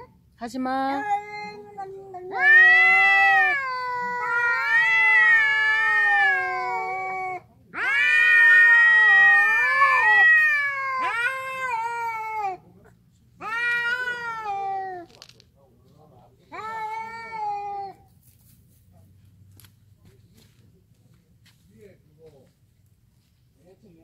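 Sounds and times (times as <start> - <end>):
cats yowling: 0.9 - 12.6, 13.4 - 15.2, 16.5 - 18.0.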